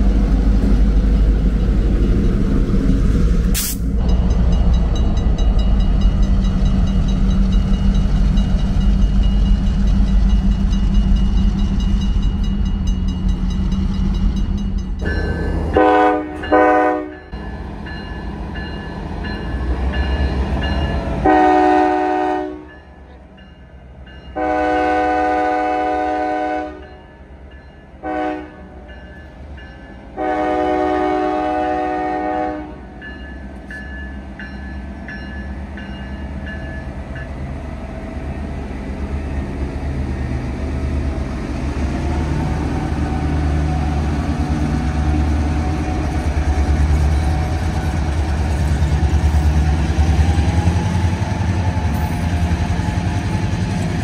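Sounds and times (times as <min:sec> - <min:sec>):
train rumbling: 0:00.0 - 0:54.0
locomotive horn blowing: 0:15.7 - 0:17.3, 0:21.2 - 0:22.7, 0:24.4 - 0:27.0, 0:28.0 - 0:28.8, 0:30.2 - 0:32.9.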